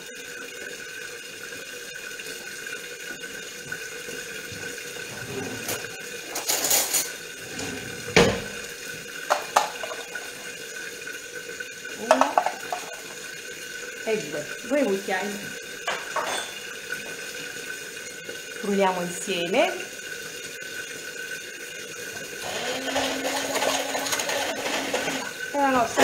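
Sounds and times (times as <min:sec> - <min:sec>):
steady kitchen hiss: 0:00.0 - 0:26.0
cookware clattering: 0:05.2 - 0:08.6, 0:09.3 - 0:10.4, 0:12.0 - 0:13.2, 0:15.8 - 0:16.7, 0:22.8 - 0:26.0.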